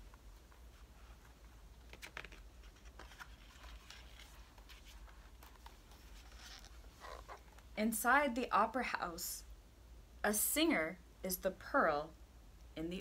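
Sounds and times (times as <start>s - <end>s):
low steady hum: 0.0s - 13.0s
book page turning: 0.5s - 7.7s.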